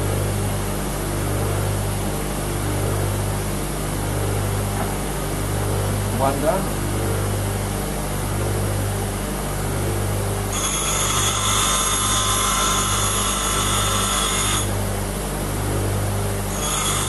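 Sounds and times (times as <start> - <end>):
bench grinder humming: 9.9 - 17.0
drill bit grinding whine: 10.2 - 15.0, 15.6 - 17.0.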